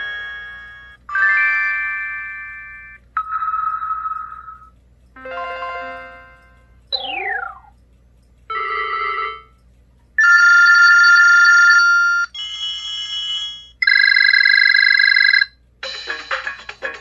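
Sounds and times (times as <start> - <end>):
rhythmic ringtone tune: 0.0 - 7.8, 8.5 - 9.6, 10.2 - 17.0.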